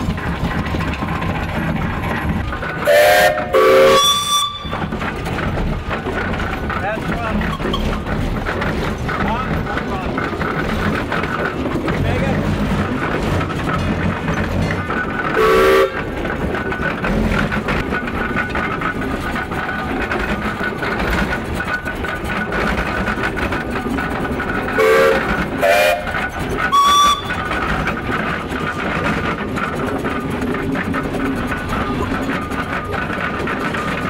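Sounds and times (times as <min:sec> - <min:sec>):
steam traction engine running: 0:00.0 - 0:34.0
steam whistle blasts: 0:02.9 - 0:04.8, 0:15.4 - 0:16.0, 0:24.8 - 0:26.1, 0:26.7 - 0:27.4.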